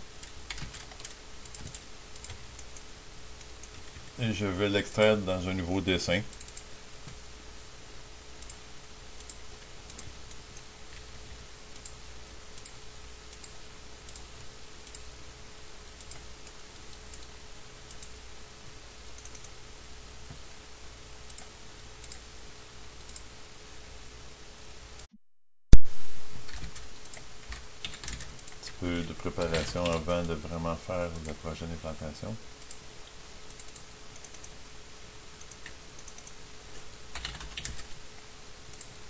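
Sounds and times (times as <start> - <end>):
low electrical hum: 0.0 - 25.1, 25.7 - 39.0
computer mouse clicks: 0.2 - 4.2, 6.3 - 7.2, 8.4 - 8.6, 9.2 - 11.1, 11.7 - 12.0, 12.6 - 15.1, 16.0 - 17.3, 17.9 - 18.2, 19.1 - 19.6, 21.2 - 22.2, 23.0 - 23.3, 26.5 - 28.8, 32.6 - 32.8, 33.5 - 34.6, 35.4 - 38.0, 38.7 - 39.0
recording hiss: 25.9 - 39.0.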